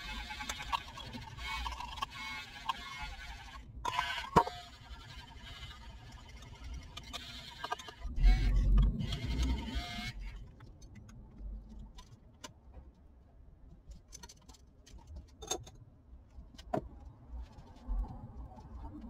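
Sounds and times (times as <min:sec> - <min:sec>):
handheld frother whirring: 0:00.0 - 0:10.4.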